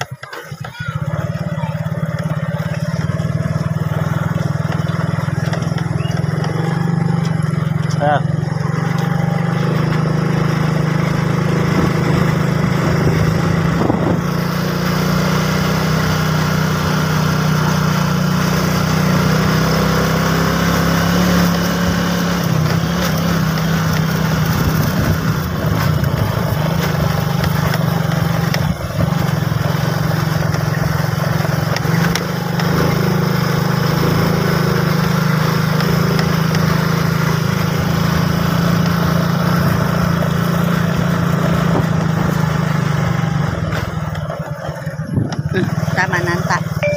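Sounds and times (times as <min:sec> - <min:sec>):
motorcycle engine running: 0:00.0 - 0:46.9
road noise: 0:00.0 - 0:46.9
wind noise: 0:12.9 - 0:14.4, 0:45.1 - 0:45.6.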